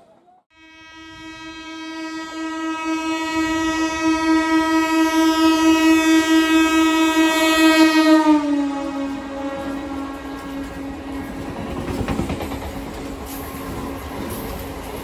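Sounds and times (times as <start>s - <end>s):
train horn blast: 0.5s - 11.6s
train running rumble: 9.1s - 15.0s.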